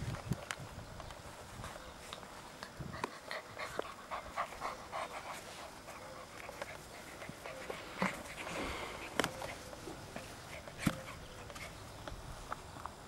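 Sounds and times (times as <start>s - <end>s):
puppy panting: 2.7s - 11.8s.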